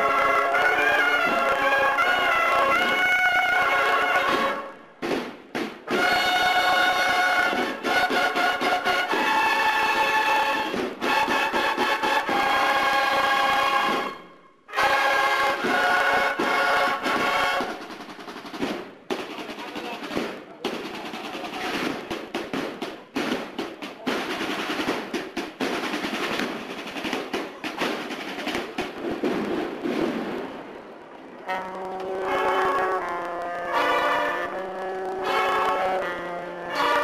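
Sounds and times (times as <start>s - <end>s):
snare drum rolls: 2.5s - 3.1s, 4.1s - 14.2s, 14.8s - 30.8s
cornets holding a chord: 31.5s - 37.0s.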